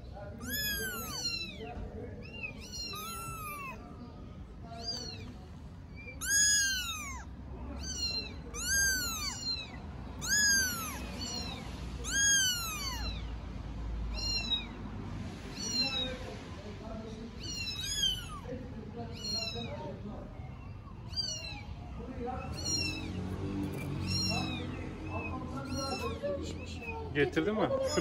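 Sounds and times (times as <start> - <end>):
kitten meowing: 0.3 - 13.4, 14.1 - 14.8, 15.5 - 16.2, 17.3 - 27.1.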